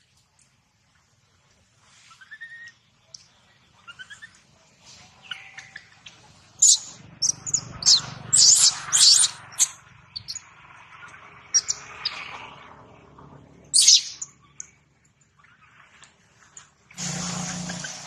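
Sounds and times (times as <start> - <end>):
baby monkey screaming: 6.6 - 10.4, 13.8 - 14.3.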